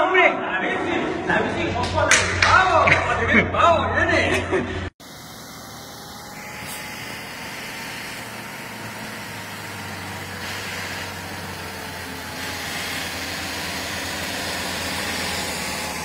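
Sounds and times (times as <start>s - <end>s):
truck diesel engine humming: 5.0s - 16.0s.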